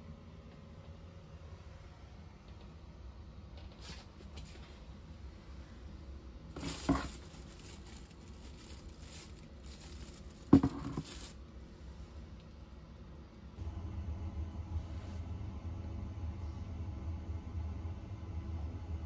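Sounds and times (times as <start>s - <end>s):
plastic bin liner crinkling: 6.5s - 11.5s.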